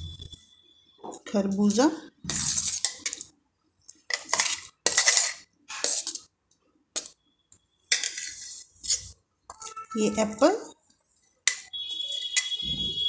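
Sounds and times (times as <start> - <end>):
steel utensils scraping and clinking: 2.3 - 3.3, 4.1 - 6.3, 7.9 - 10.5, 11.4 - 12.6.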